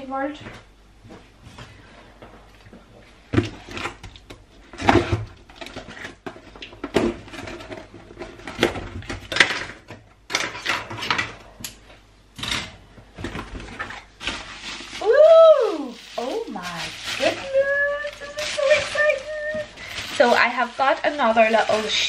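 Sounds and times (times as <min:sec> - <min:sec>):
items bumping: 0:12.5 - 0:22.0
packaging rustling and crinkling: 0:13.2 - 0:22.0.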